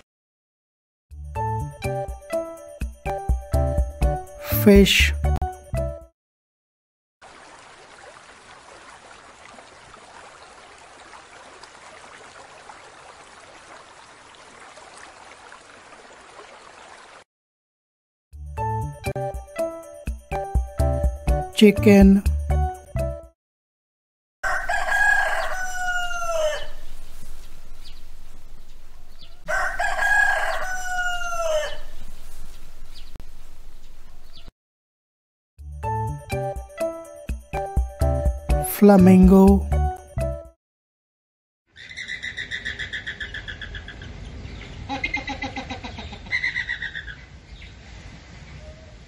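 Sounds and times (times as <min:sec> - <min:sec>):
rooster crowing: 0:24.4 - 0:26.9, 0:29.1 - 0:32.1.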